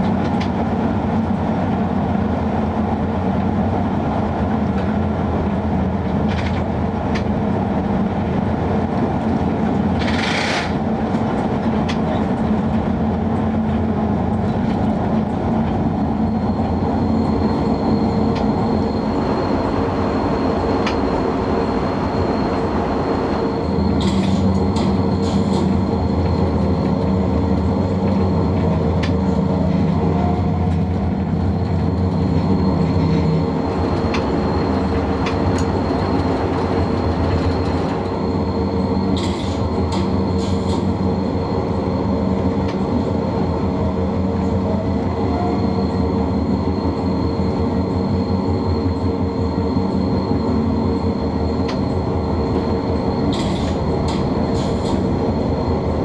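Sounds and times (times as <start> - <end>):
locomotive hum and whine: 0.0 - 56.0
wheels on rails: 8.8 - 43.5.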